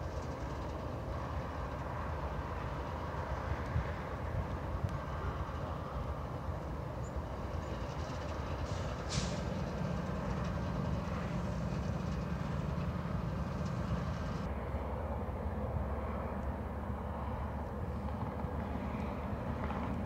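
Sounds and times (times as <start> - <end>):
freight train rumbling past: 0.0 - 20.0
brief hiss: 8.7 - 9.6.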